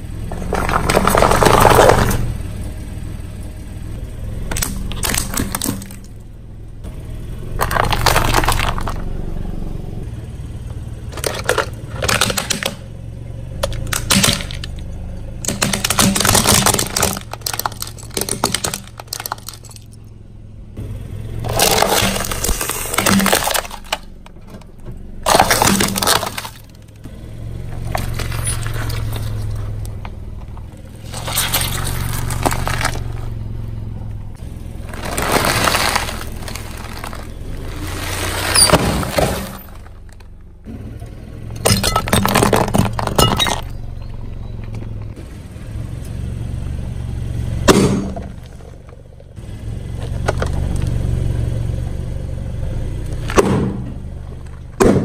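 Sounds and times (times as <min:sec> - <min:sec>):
car engine low hum: 0:00.0 - 0:55.0
car tyre crushing objects: 0:00.0 - 0:55.0
plastic toy cracking: 0:15.4 - 0:19.7.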